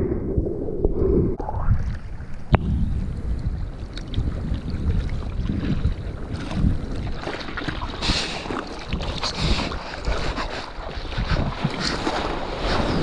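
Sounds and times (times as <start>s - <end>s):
wind buffeting microphone: 0.0s - 13.0s
seawater splashing against surfboard: 4.9s - 13.0s.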